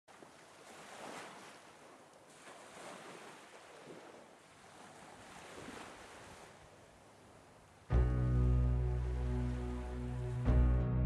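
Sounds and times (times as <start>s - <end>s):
small waves lapping on shore: 0.1s - 8.0s.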